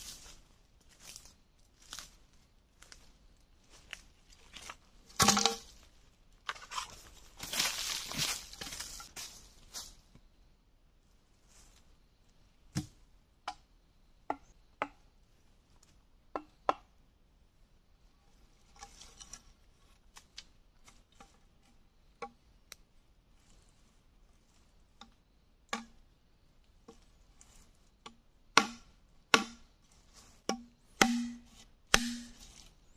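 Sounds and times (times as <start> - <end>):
machete chopping bamboo and wood: 5.2 - 5.7, 25.7 - 26.0, 28.0 - 29.7, 30.4 - 32.6.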